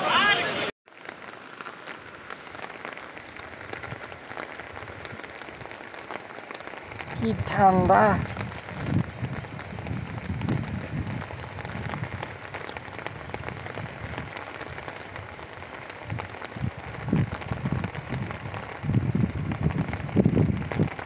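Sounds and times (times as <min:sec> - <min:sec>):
rain falling onto water: 0:00.5 - 0:21.0
low rumbling thumps: 0:08.2 - 0:12.2.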